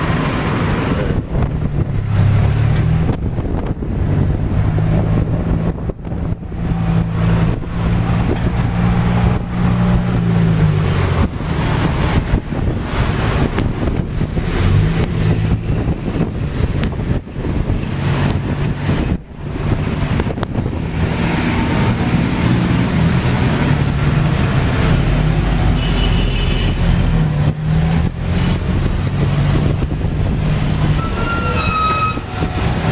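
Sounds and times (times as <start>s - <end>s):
passing traffic: 0.0s - 32.9s
short high squeal: 30.8s - 32.9s.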